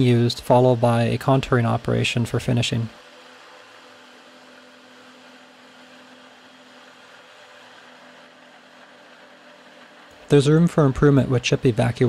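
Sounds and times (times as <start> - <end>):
milling machine cutting steel: 0.0 - 12.0.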